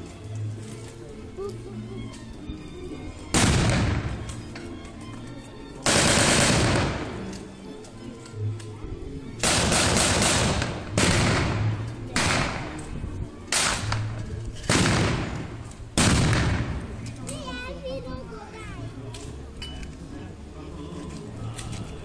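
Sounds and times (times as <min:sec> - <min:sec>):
blank gunfire with echo: 0:03.3 - 0:04.2, 0:05.8 - 0:07.2, 0:09.4 - 0:12.8, 0:13.5 - 0:14.1, 0:14.7 - 0:16.8.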